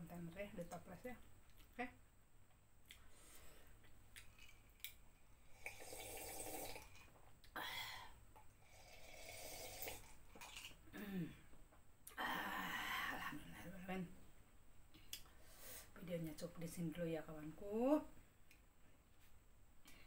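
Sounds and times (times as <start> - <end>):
person slurping a drink: 5.5 - 7.1, 8.6 - 10.8.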